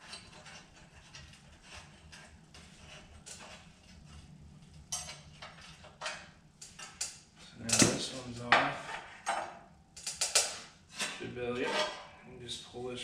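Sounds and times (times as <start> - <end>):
tools clinking on metal: 6.0 - 8.0.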